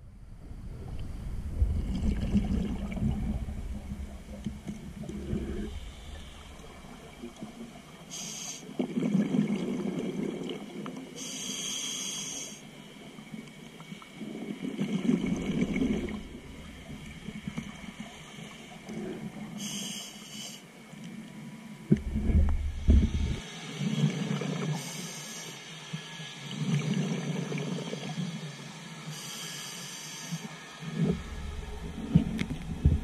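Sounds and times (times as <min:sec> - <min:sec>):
exhaled bubbles rumbling: 0:00.0 - 0:08.0, 0:08.7 - 0:10.8, 0:14.2 - 0:18.1, 0:21.9 - 0:23.4, 0:30.9 - 0:33.0
diver inhaling through regulator: 0:05.0 - 0:06.9, 0:08.1 - 0:08.7, 0:11.2 - 0:12.6, 0:18.9 - 0:20.7, 0:29.1 - 0:30.5.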